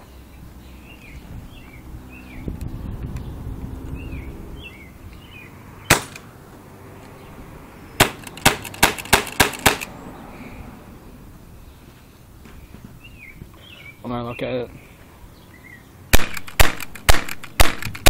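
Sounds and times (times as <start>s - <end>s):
airsoft pistol shots: 5.9s - 6.2s, 8.0s - 9.9s, 16.1s - 18.0s.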